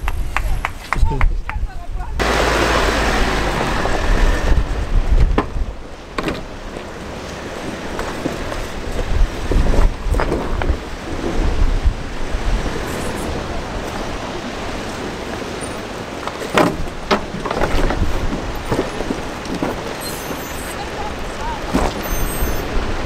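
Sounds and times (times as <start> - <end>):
vehicle engine low rumble: 0.0 - 23.0
vehicle knocks and rattles: 2.2 - 11.6, 14.8 - 23.0.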